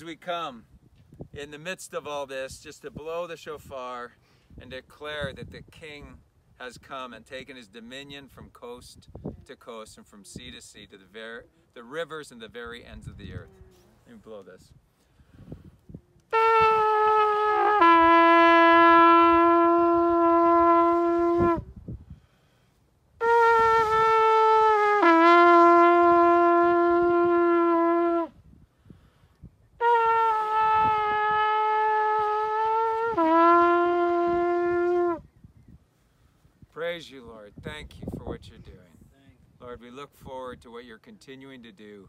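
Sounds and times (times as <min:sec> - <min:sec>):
person breathing: 0:04.2 - 0:04.6, 0:14.9 - 0:15.8, 0:22.0 - 0:22.8, 0:28.7 - 0:29.4, 0:35.9 - 0:36.6
shofar horn blasts: 0:16.3 - 0:21.8, 0:23.2 - 0:28.4, 0:29.8 - 0:35.3.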